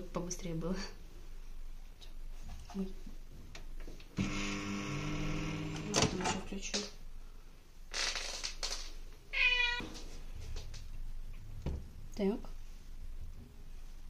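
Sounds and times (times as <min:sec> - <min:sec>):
microwave oven humming: 0:04.2 - 0:06.2.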